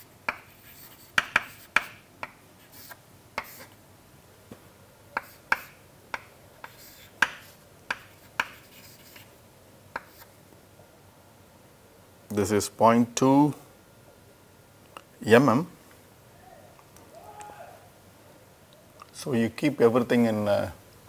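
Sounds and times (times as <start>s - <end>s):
chalk scraping: 0.0s - 3.7s, 5.2s - 5.8s, 6.6s - 9.3s
chalk tapping on chalkboard: 0.0s - 3.7s, 5.2s - 9.3s, 9.9s - 10.3s.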